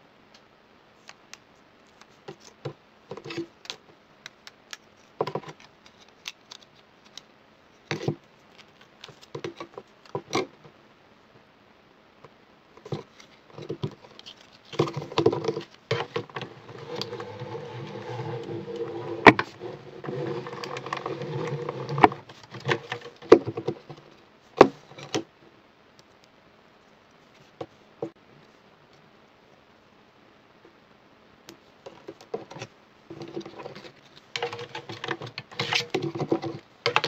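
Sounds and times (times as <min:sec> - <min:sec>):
die-cutting machine rollers rolling: 0:15.0 - 0:23.8
plastic plates clacking: 0:31.9 - 0:37.0.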